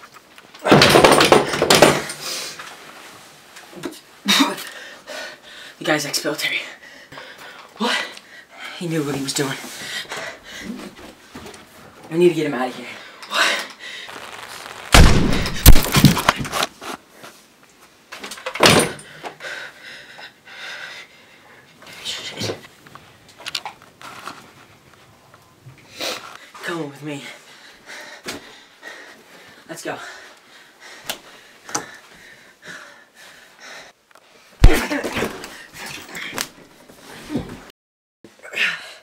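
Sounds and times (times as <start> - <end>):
people scuffling and breathing: 6.8 - 12.0, 13.0 - 17.9, 19.2 - 37.7
body falling to floor: 14.1 - 16.6, 34.6 - 35.5
loud thump: 14.9 - 16.2.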